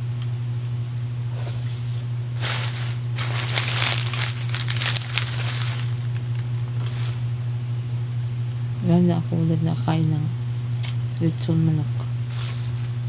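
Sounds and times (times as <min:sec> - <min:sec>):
low hum: 0:00.0 - 0:13.0
plastic bag and foil crinkling: 0:02.4 - 0:07.3, 0:12.3 - 0:13.0.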